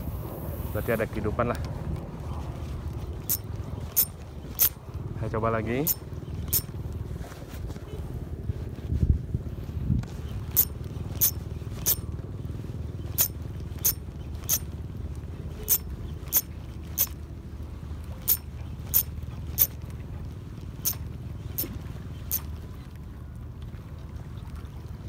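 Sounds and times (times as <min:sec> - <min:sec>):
low rumble of wind: 0:00.0 - 0:25.0
fishing reel ticking: 0:03.2 - 0:04.8, 0:05.8 - 0:06.7, 0:10.5 - 0:12.0, 0:13.1 - 0:14.7, 0:15.6 - 0:17.2, 0:18.2 - 0:19.8, 0:20.8 - 0:22.5.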